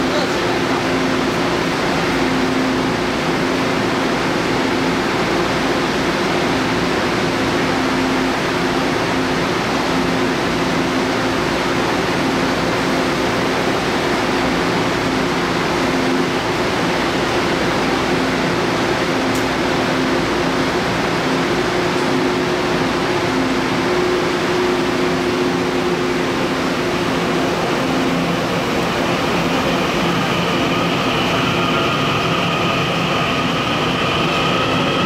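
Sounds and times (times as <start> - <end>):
train hum and rushing air: 0.0 - 35.0
steady low tones: 19.7 - 35.0.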